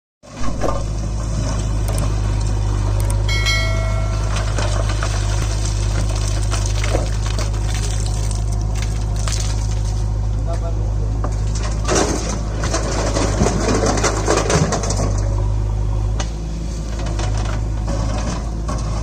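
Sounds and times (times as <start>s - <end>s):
diesel engine running: 0.2s - 19.0s
brief high whine: 3.3s - 4.8s
bucket scraping stone rubble: 4.2s - 10.1s, 11.4s - 15.2s.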